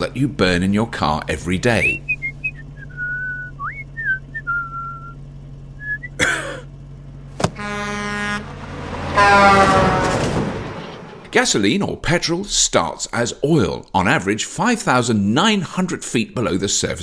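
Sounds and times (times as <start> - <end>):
truck rushing by: 0.1 - 12.2
low hum: 1.5 - 11.6
person whistling a tune: 2.0 - 5.2, 5.8 - 6.2
truck horn blaring: 7.2 - 11.3.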